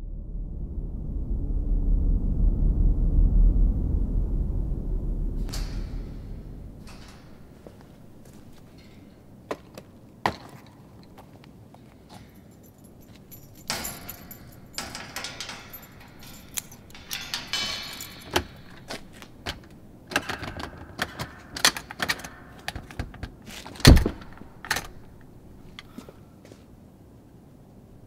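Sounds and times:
metal door rattling and clicking: 0:05.4 - 0:09.7, 0:12.7 - 0:25.7.

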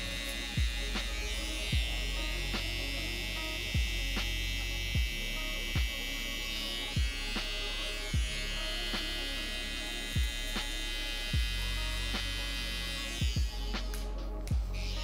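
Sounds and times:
background music: 0:00.0 - 0:15.0
electric hair trimmer buzzing: 0:00.0 - 0:15.0
deep kick drum: 0:00.6 - 0:02.7, 0:03.7 - 0:05.2, 0:05.8 - 0:06.0, 0:06.9 - 0:07.3, 0:08.2 - 0:08.4, 0:10.2 - 0:10.5, 0:11.4 - 0:11.6, 0:13.2 - 0:13.8, 0:14.5 - 0:14.8.

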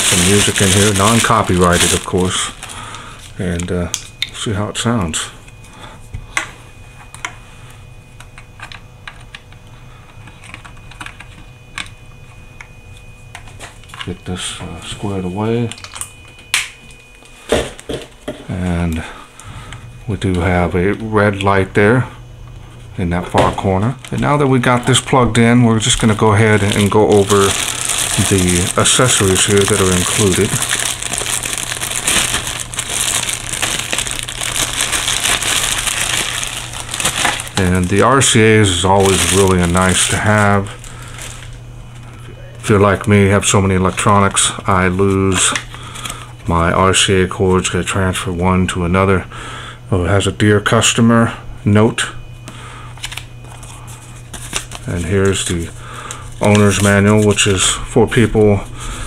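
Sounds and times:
plastic bag crinkling: 0:00.0 - 0:04.1, 0:25.8 - 0:42.2, 0:53.0 - 0:59.0.

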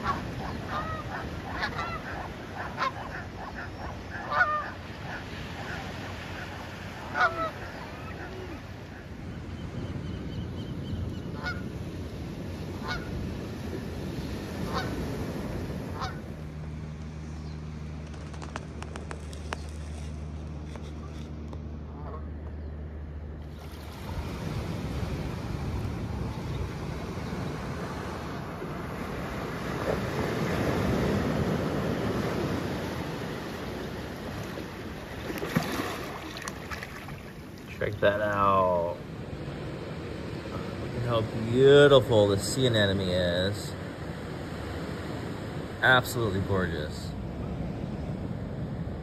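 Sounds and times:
geese honking: 0:00.0 - 0:09.1, 0:11.3 - 0:11.7, 0:12.8 - 0:13.2, 0:14.6 - 0:15.0, 0:15.9 - 0:16.3, 0:21.8 - 0:22.4
waves washing on shore: 0:00.0 - 0:09.5, 0:11.3 - 0:20.8, 0:23.4 - 0:49.0.

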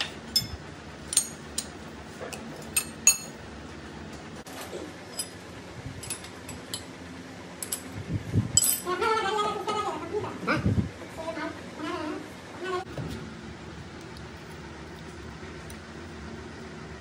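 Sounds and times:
steady low hum: 0:00.0 - 0:17.0
metal tools clinking: 0:08.6 - 0:08.9.

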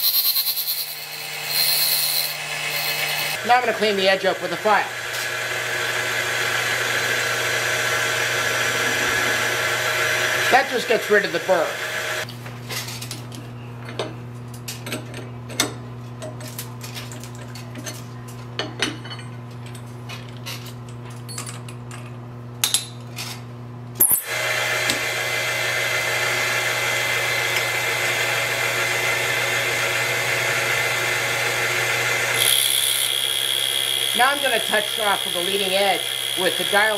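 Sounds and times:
grinder machine humming: 0:00.0 - 0:12.3, 0:24.1 - 0:36.9.

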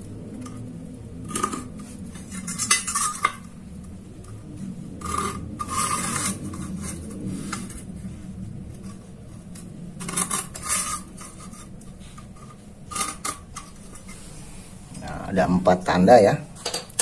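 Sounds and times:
scriber scraping metal: 0:01.3 - 0:03.6, 0:04.2 - 0:14.9.

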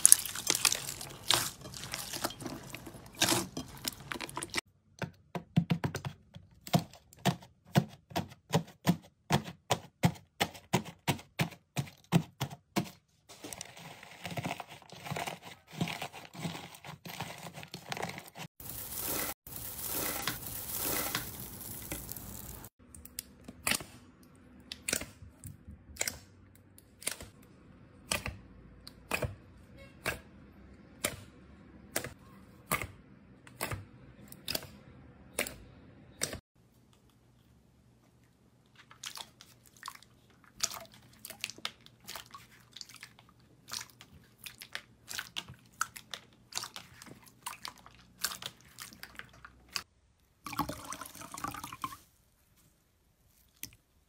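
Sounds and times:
foil crinkling rustle: 0:00.0 - 0:04.6, 0:13.3 - 0:22.7.

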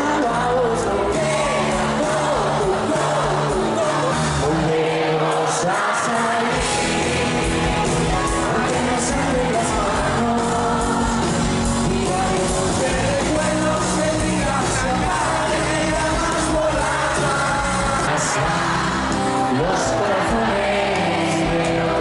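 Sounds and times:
pop-rock band playing live: 0:00.0 - 0:04.7, 0:05.4 - 0:22.0
crowd shouting along: 0:00.0 - 0:13.1, 0:16.8 - 0:22.0
person singing: 0:00.0 - 0:22.0.

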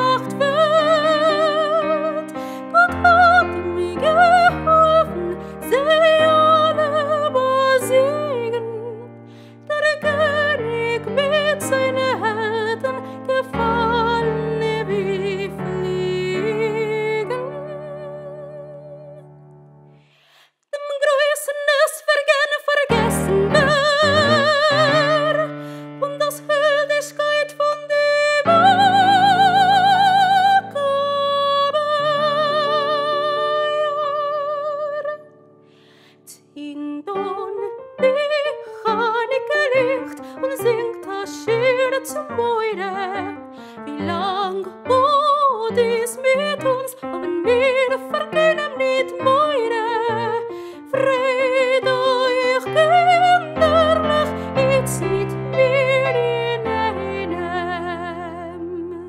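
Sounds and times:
woman singing: 0:00.0 - 0:19.3, 0:20.7 - 0:35.5, 0:36.1 - 0:59.0
digital piano chords: 0:23.0 - 0:26.0.

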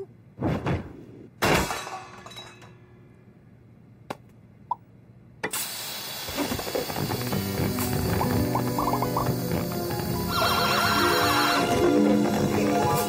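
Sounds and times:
music: 0:07.1 - 0:13.0.

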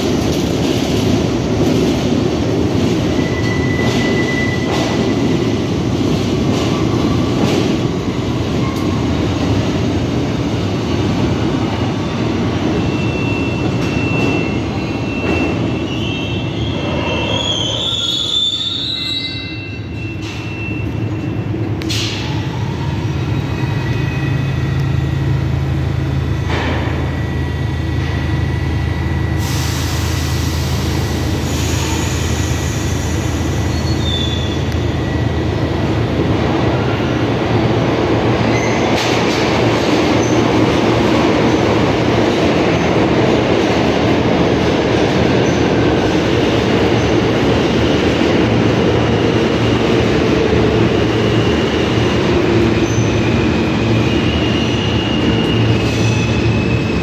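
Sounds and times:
subway train rumbling on rails: 0:00.0 - 0:57.0
high-pitched wheel squeals: 0:03.2 - 0:04.7, 0:12.8 - 0:21.5.

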